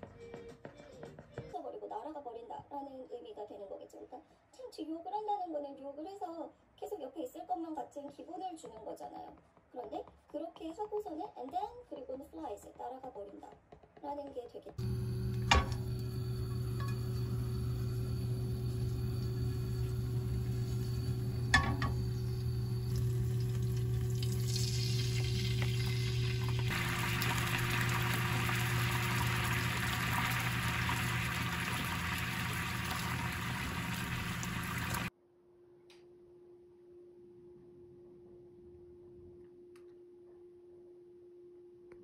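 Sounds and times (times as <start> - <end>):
sauce sizzling in a pan: 14.8 - 35.1
steady low hum: 14.8 - 35.1.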